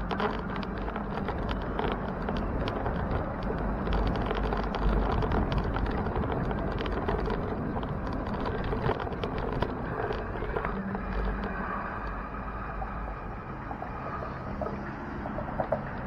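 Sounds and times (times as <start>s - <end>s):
bicycle clicks and rattles: 0.0s - 12.3s
wind buffeting: 0.0s - 16.0s.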